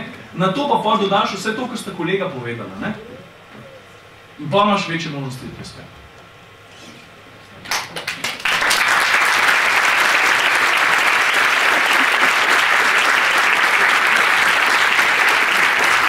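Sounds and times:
audience applauding: 7.6s - 16.0s.

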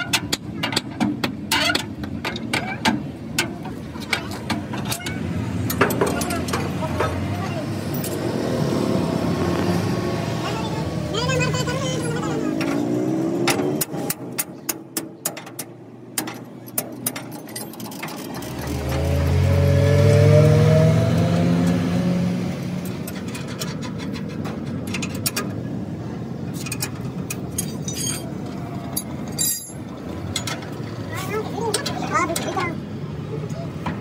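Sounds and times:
vehicle engine revving: 5.5s - 14.2s, 18.3s - 23.2s.

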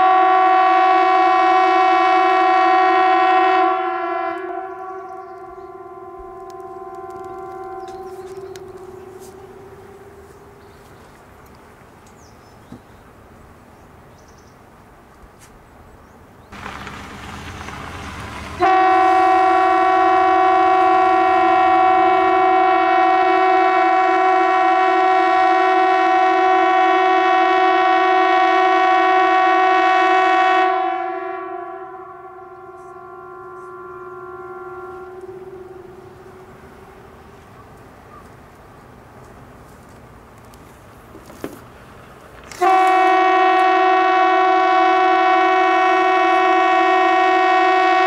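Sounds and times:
civil defence siren blast: 0.0s - 10.6s, 16.6s - 37.2s, 42.6s - 48.0s
rushing noise: 16.5s - 22.4s.

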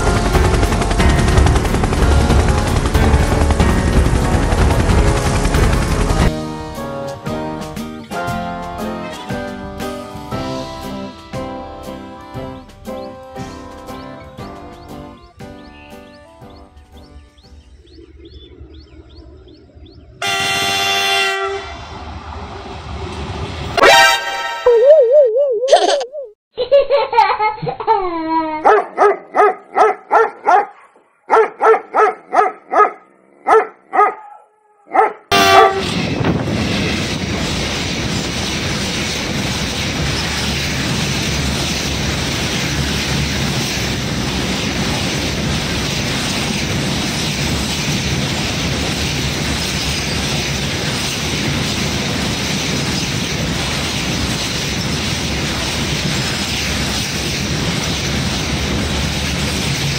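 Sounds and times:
train wheels on rails: 0.0s - 11.3s, 20.2s - 23.8s, 35.3s - 59.9s.

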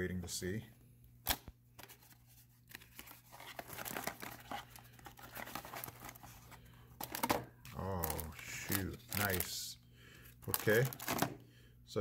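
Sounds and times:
cardboard box packaging rustling: 1.8s - 9.6s, 10.4s - 11.3s.

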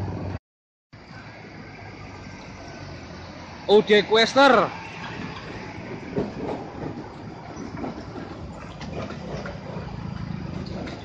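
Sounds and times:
truck diesel rumble: 1.0s - 11.0s
truck body rattling: 4.8s - 11.0s.

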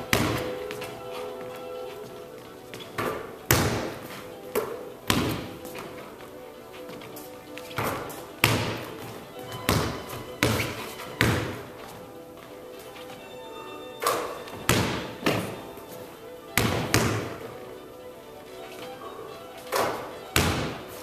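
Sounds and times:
basketball bouncing on hardwood floor: 0.0s - 0.9s, 2.7s - 4.0s, 4.6s - 5.9s, 7.8s - 11.6s, 14.5s - 15.6s, 16.6s - 17.3s, 19.8s - 20.8s
background music: 0.0s - 21.0s
ball striking hoop: 0.1s - 0.5s, 16.6s - 17.3s.

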